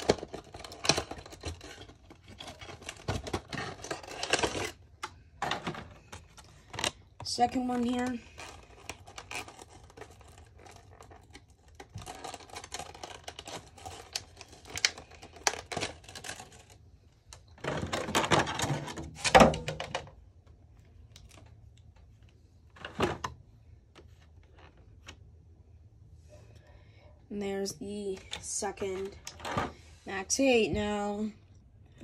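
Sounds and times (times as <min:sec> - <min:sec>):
box packaging rustling: 0:00.0 - 0:16.8.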